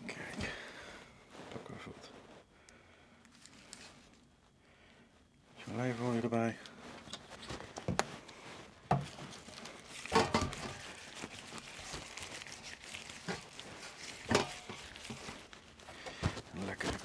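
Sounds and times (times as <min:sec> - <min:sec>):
wet rubbing of fruit: 0:06.8 - 0:17.0.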